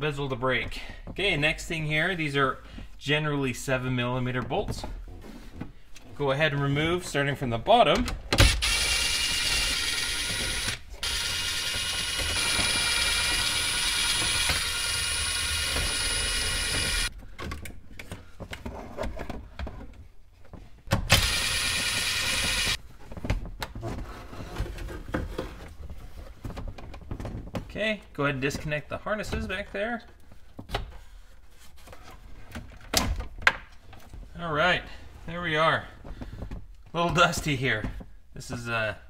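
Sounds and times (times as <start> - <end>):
cordless drill motor whine: 8.4 - 17.1, 21.1 - 22.8.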